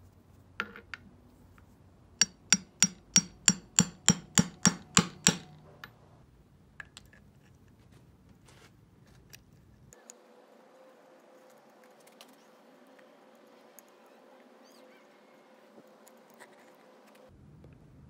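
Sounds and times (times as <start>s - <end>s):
hammer striking metal socket: 2.2s - 6.0s.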